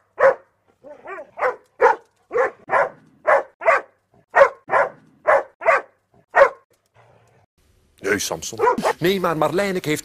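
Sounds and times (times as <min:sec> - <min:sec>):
person imitating dog barks: 0:08.5 - 0:09.1.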